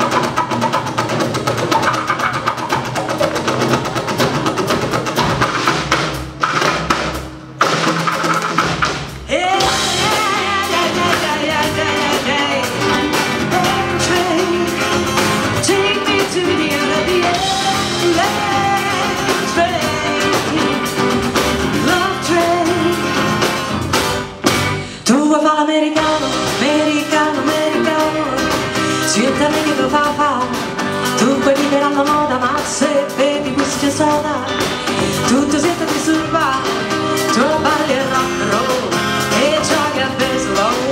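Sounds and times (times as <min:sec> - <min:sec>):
electric bass: 0:00.0 - 0:25.0
acoustic guitar: 0:00.0 - 0:40.9
drum kit: 0:00.0 - 0:40.9
woman singing: 0:09.3 - 0:23.4, 0:25.0 - 0:40.9.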